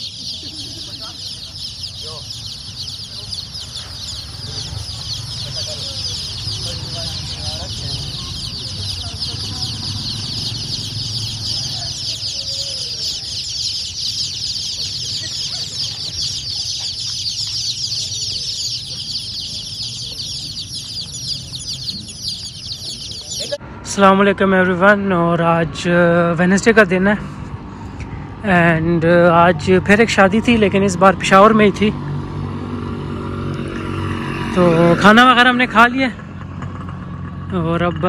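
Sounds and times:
chicks peeping: 0.0s - 24.7s.

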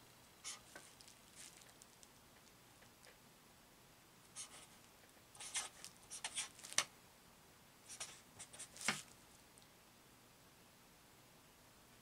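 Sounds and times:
scratchy marker strokes: 4.4s - 4.8s, 5.4s - 6.7s.

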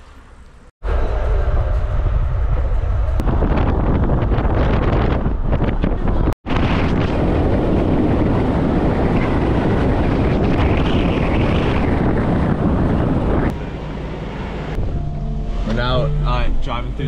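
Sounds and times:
road noise: 0.0s - 17.0s
wind buffeting microphone: 0.9s - 13.6s.

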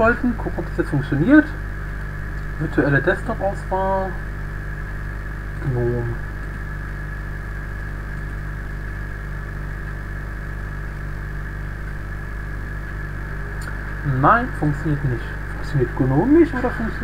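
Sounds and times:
electrical hum with hiss: 0.0s - 17.0s.

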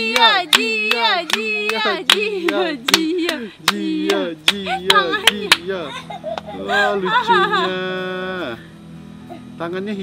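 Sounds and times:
hands clapping in rhythm: 0.0s - 5.7s.

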